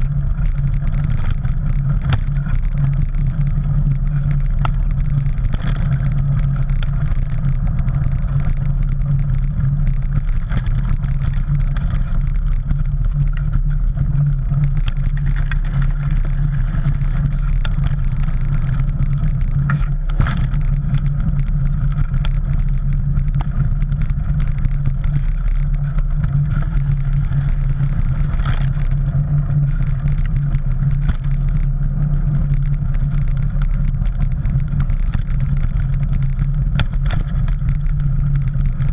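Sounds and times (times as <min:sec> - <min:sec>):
mountain bike rumbling on dirt trail: 0:00.0 - 0:38.9.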